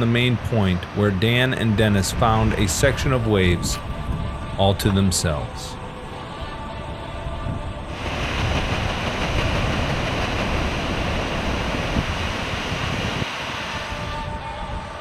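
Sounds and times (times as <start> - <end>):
ocean waves breaking: 0.0 - 4.0, 7.9 - 15.0.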